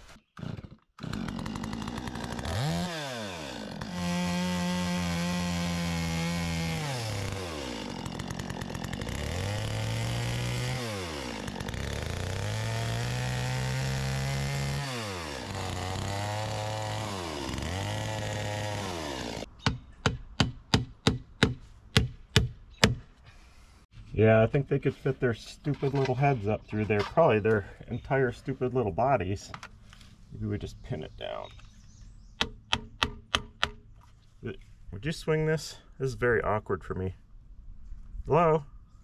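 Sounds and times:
chainsaw cutting wood: 0.0 - 23.0.

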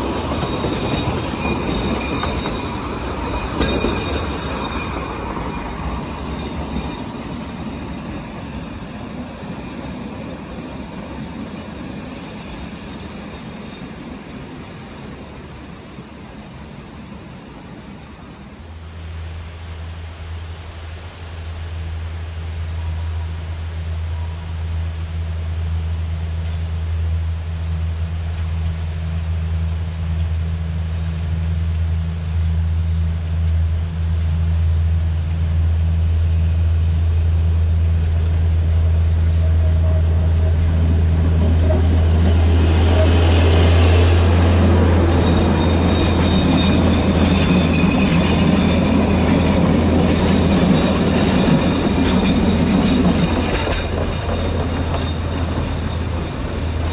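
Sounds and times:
train wagons rattling past: 0.0 - 18.8, 32.4 - 56.9
diesel locomotive engine droning: 0.0 - 56.9
wheels squealing on track: 39.3 - 56.9.

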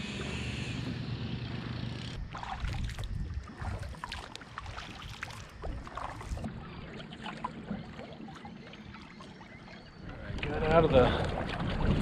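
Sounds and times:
water splashing against hull: 2.2 - 12.0
wind buffeting microphone: 10.0 - 12.0.

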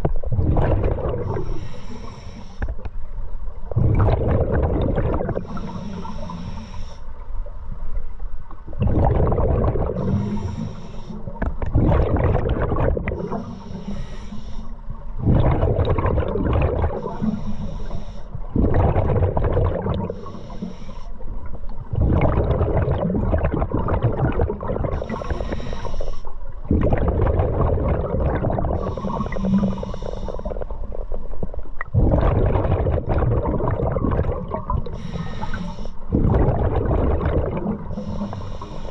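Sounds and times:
diver breathing through regulator: 1.1 - 2.8, 5.3 - 7.2, 9.9 - 11.4, 13.1 - 15.0, 16.9 - 18.6, 19.9 - 21.4, 24.9 - 26.4, 28.7 - 30.8, 34.7 - 36.2, 37.8 - 38.9
bubbling exhalation: 3.8 - 5.5, 8.8 - 10.1, 11.7 - 13.4, 15.2 - 17.1, 18.6 - 20.1, 22.0 - 25.3, 26.7 - 29.4, 31.9 - 35.0, 36.1 - 38.0.

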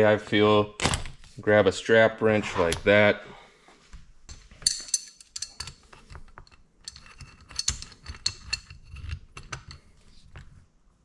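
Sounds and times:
metal wrenches clicking and clinking: 4.3 - 9.9.

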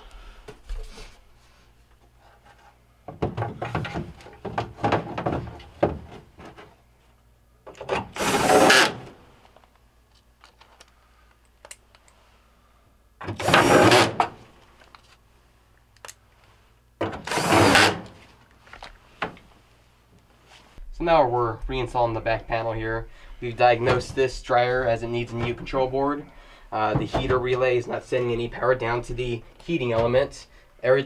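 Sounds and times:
cordless drill driving screws: 8.1 - 9.1, 13.4 - 14.2, 17.2 - 18.1.

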